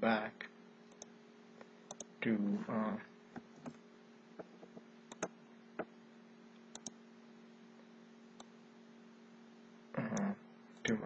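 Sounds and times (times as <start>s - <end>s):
faint steady hum: 0.0s - 11.0s
computer mouse clicks: 1.9s - 2.1s, 5.1s - 5.3s, 6.7s - 7.0s.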